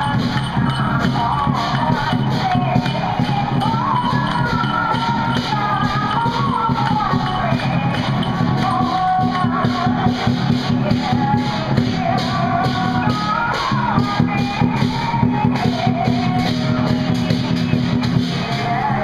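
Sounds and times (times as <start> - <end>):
wavering high melody: 0.0 - 10.0
drums and cymbals beat: 0.0 - 19.0.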